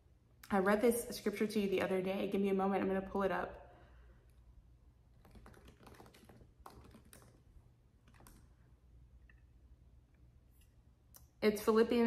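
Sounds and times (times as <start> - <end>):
faint keyboard typing: 5.1 - 8.7.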